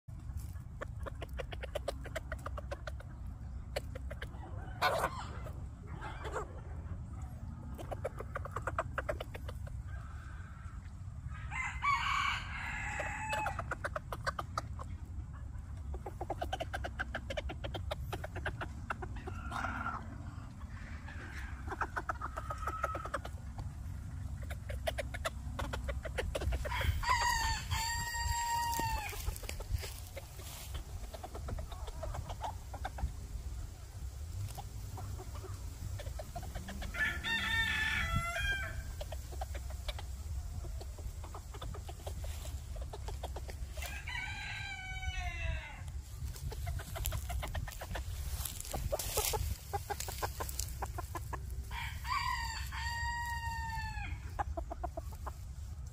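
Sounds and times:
roosters crowing: 0:04.2 - 0:06.5, 0:09.8 - 0:14.0, 0:19.2 - 0:23.6, 0:26.4 - 0:30.8, 0:35.3 - 0:39.4, 0:43.4 - 0:47.3, 0:48.0 - 0:54.5.

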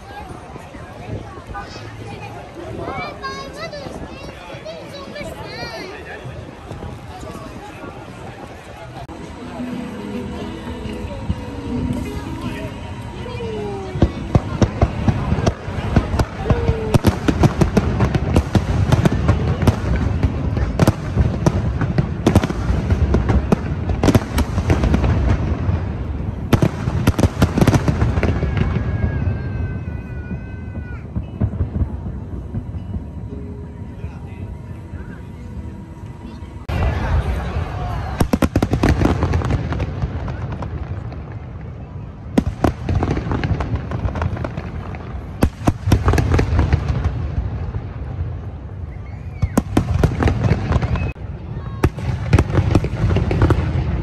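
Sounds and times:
fireworks bangs and crackles: 0:00.0 - 0:54.0
echoing rumble: 0:06.2 - 0:54.0.

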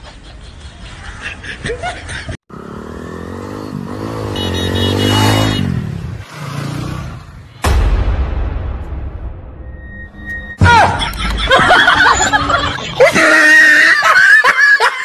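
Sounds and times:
motorcycle passing by: 0:02.5 - 0:07.6.

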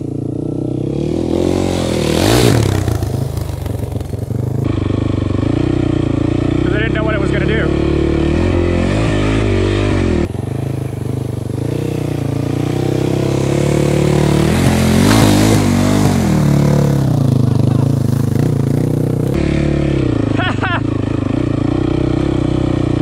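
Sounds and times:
dirt bike engine revving: 0:00.0 - 0:23.0.

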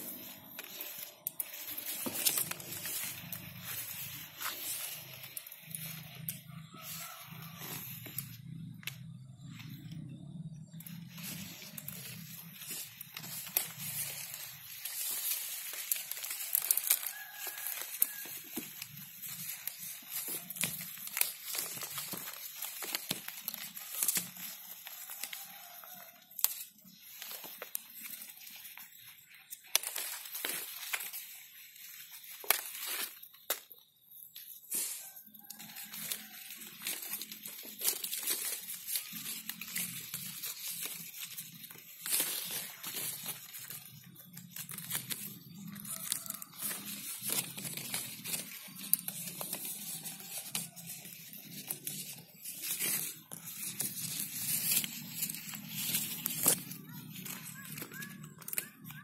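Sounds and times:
leaves and twigs rustling: 0:00.0 - 0:59.0.

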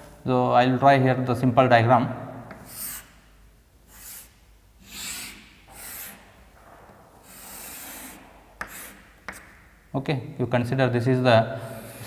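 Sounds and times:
chalk scratching on chalkboard: 0:02.5 - 0:03.2, 0:03.9 - 0:06.4, 0:07.2 - 0:09.5.

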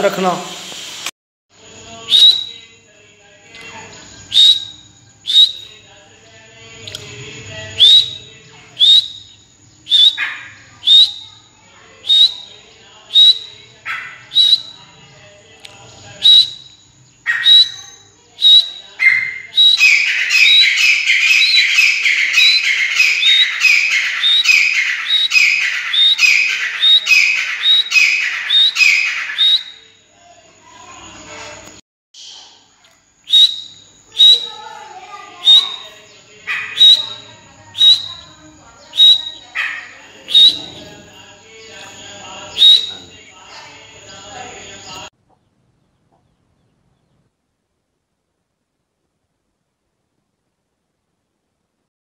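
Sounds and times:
partridges calling: 0:16.4 - 0:29.9.

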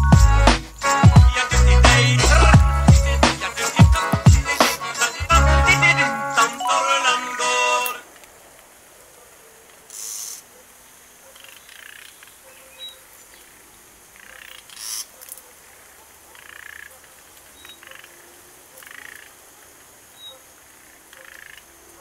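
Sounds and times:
frogs croaking: 0:05.9 - 0:22.0.

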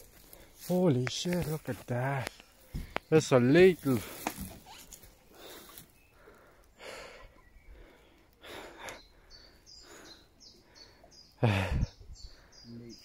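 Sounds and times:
small bird chirping: 0:04.4 - 0:13.0
person breathing hard: 0:05.3 - 0:12.6.

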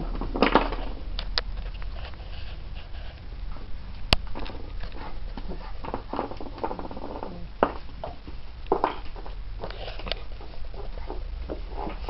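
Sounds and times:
dog chew tapping and scraping on floor: 0:04.2 - 0:12.0.

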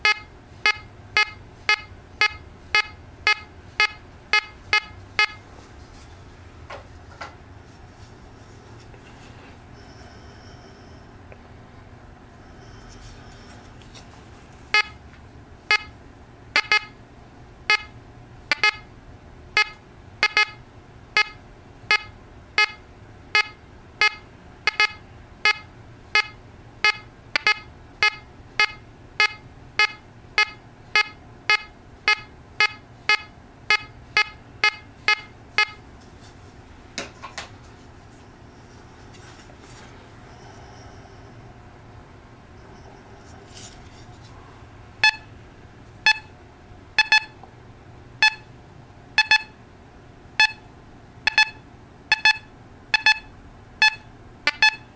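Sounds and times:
metal detector beeping: 0:00.0 - 0:05.4, 0:14.7 - 0:15.0, 0:15.7 - 0:15.9, 0:16.6 - 0:17.0, 0:17.7 - 0:17.9, 0:18.5 - 0:18.9, 0:19.6 - 0:20.6, 0:21.2 - 0:22.8, 0:23.4 - 0:35.8, 0:45.0 - 0:45.3, 0:46.1 - 0:46.3, 0:47.0 - 0:47.4, 0:48.2 - 0:48.5, 0:49.2 - 0:49.6, 0:50.4 - 0:50.6, 0:51.3 - 0:54.9.

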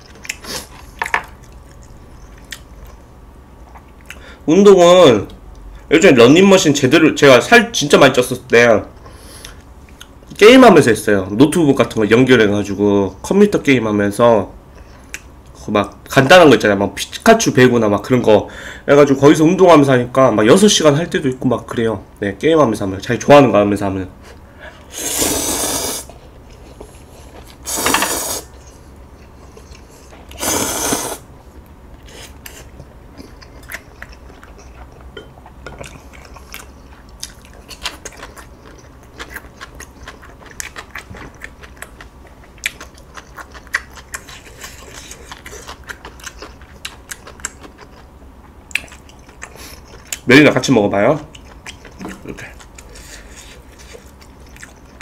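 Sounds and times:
chewing and crunching: 0:00.0 - 0:04.2, 0:31.5 - 0:55.0
noodles slurped: 0:25.0 - 0:26.1, 0:30.3 - 0:31.2.

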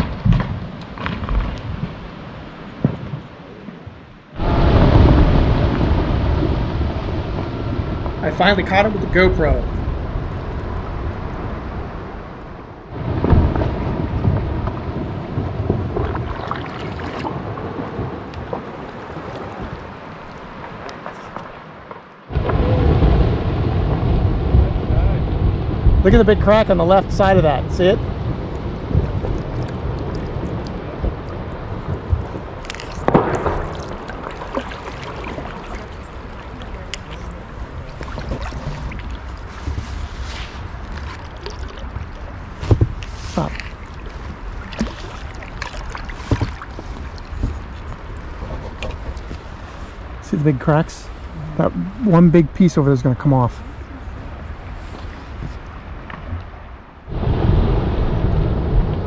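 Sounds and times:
deep rumble of glacier calving: 0:00.0 - 0:59.0
water splashing and dripping: 0:13.0 - 0:22.1, 0:26.2 - 0:52.2
ice crackling: 0:28.9 - 0:52.8.

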